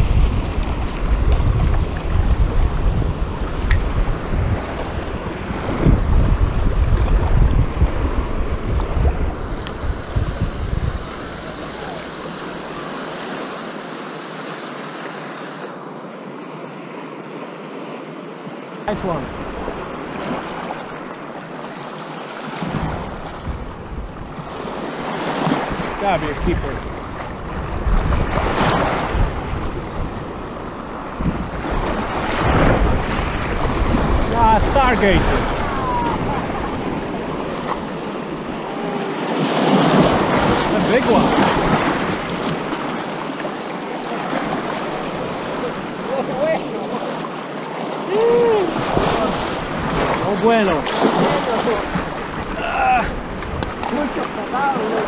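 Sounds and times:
wind buffeting microphone: 0.0 - 12.8, 22.6 - 43.3, 48.1 - 54.9
small waves lapping: 10.9 - 55.0.

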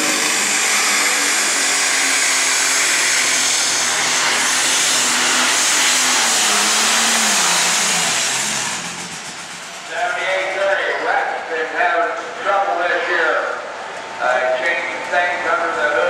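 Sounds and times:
turbocharger whistle: 0.0 - 9.8
tractor diesel engine roaring: 0.0 - 16.0.

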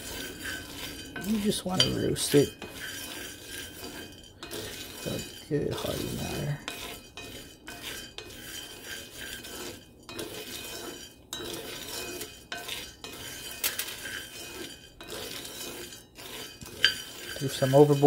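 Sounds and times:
coffee beans rattling in a skillet: 0.0 - 18.0.

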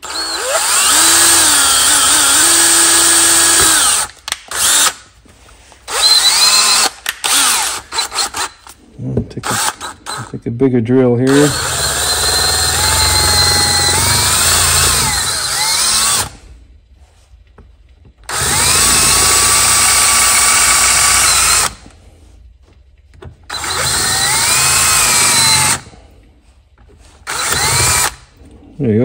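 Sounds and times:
cordless drill drilling into metal: 0.0 - 5.0, 5.9 - 8.5, 11.3 - 16.4, 18.3 - 21.8, 23.5 - 25.9, 27.3 - 28.2.

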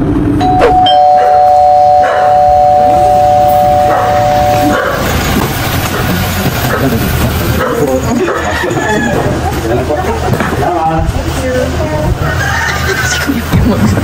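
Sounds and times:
loud two-note tone: 0.4 - 5.4.

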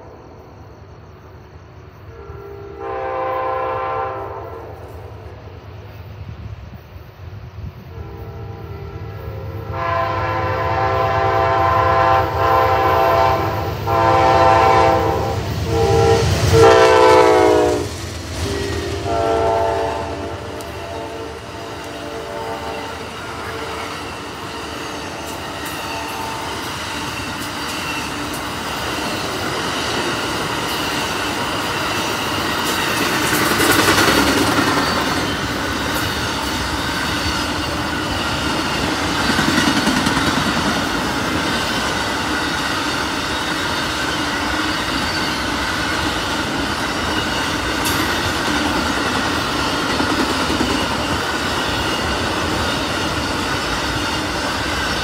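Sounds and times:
train horn blasts: 2.1 - 5.3, 7.8 - 26.8
train cars clattering on rails: 10.7 - 55.0.

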